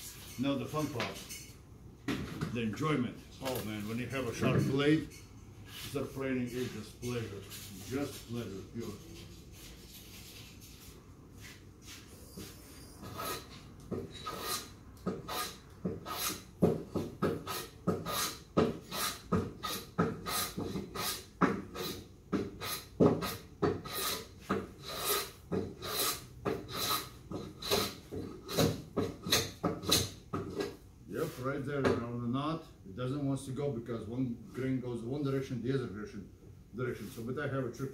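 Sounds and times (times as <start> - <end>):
hand plane shaving wood: 13.0 - 13.5, 14.2 - 14.7, 15.3 - 16.4, 17.2 - 22.0, 22.6 - 24.2, 24.8 - 28.8.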